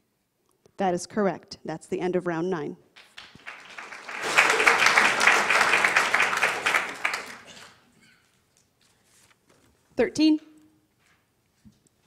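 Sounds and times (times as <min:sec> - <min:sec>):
small audience clapping: 0:03.0 - 0:07.9.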